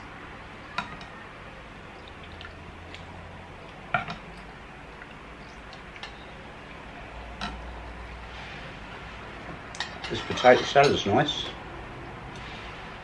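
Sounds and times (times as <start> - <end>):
ladle and spoons clinking bowls: 9.8 - 11.5.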